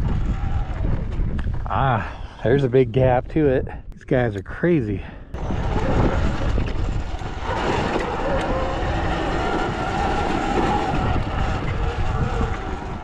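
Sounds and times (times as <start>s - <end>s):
wind rush on microphone: 0.0s - 13.0s
electric motor whine: 5.4s - 13.0s
tyre noise on dirt: 5.4s - 13.0s.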